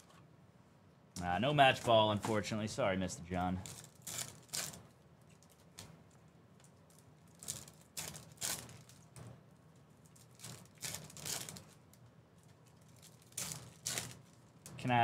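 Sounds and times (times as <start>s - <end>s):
foil wrapper crinkling: 3.6s - 5.9s, 6.8s - 9.2s, 10.0s - 14.6s.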